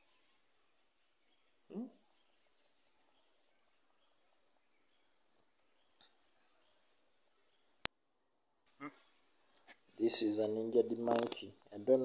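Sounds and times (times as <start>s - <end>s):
high insect chirping: 0.0s - 7.9s.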